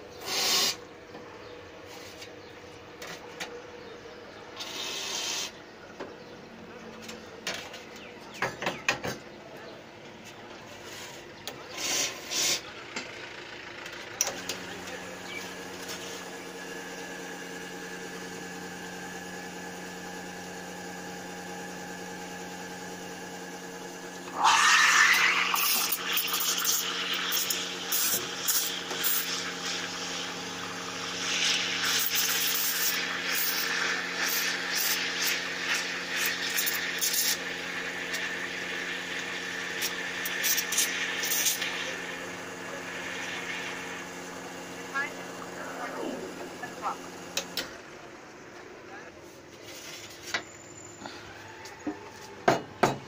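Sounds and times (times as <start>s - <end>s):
espresso machine humming: 11.7s - 49.1s
milk frothing: 24.0s - 47.6s
steam wand whistle and hiss: 24.4s - 29.2s.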